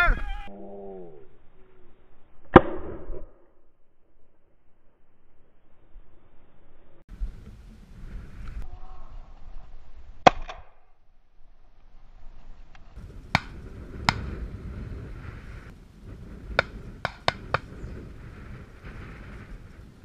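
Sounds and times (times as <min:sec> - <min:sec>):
quieter sharp cracks: 0:02.4 - 0:03.6, 0:10.2 - 0:11.0, 0:12.7 - 0:14.5, 0:16.5 - 0:17.8
shotgun shot: 0:02.5 - 0:03.4
wind noise on microphone: 0:07.1 - 0:10.2, 0:12.9 - 0:20.0.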